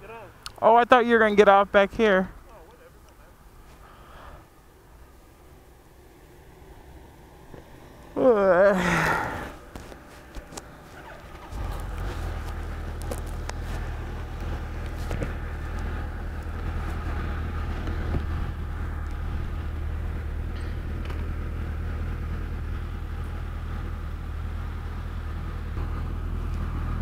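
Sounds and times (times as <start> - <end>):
motorcycle engine idling: 10.4 - 27.0.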